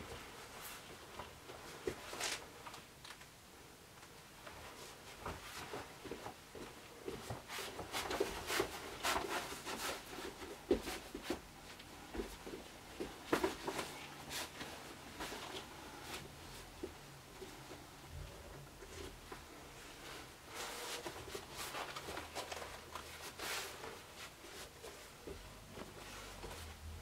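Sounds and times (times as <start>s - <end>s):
plush costume rustling: 4.5s - 17.8s, 18.9s - 27.0s
hard shoes tapping and scuffing: 5.2s - 17.8s.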